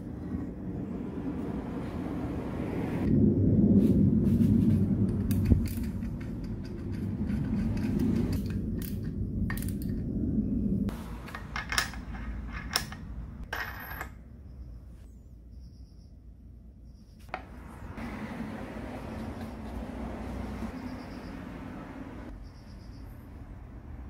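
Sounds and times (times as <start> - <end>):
metal scraping and rubbing: 4.5 - 9.0.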